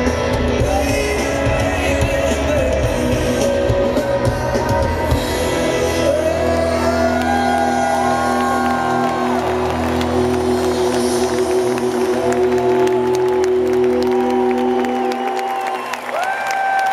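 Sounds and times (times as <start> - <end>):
rock band playing live: 0.0 - 15.9
person singing long notes: 0.5 - 15.2
crowd whooping and cheering: 6.1 - 16.9.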